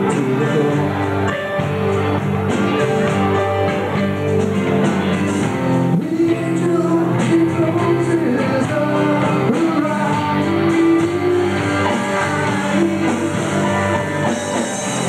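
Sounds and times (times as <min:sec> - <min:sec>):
drum kit beat: 0:00.0 - 0:15.0
electric guitar chords: 0:00.0 - 0:15.0.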